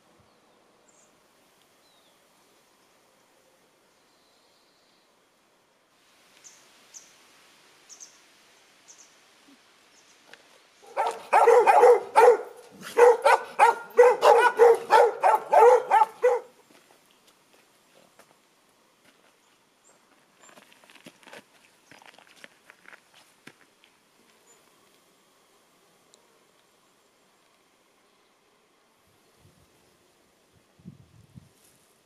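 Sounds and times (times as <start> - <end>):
dog barking rapidly: 10.9 - 16.5.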